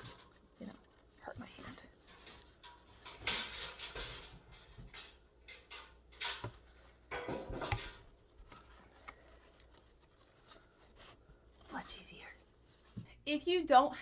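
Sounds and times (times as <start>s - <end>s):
fabric rustling: 6.4s - 13.3s.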